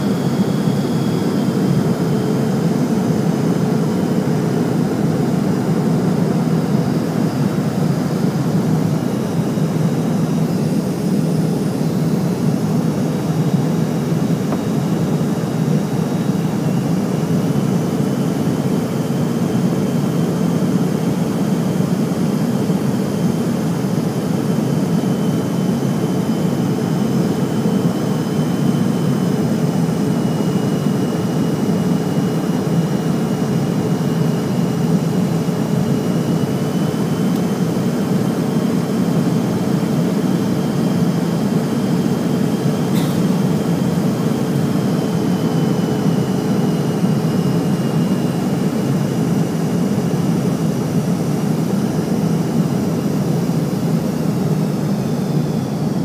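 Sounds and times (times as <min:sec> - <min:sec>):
airflow and jet engine noise: 0:00.0 - 0:56.0
brief click: 0:43.0 - 0:43.2.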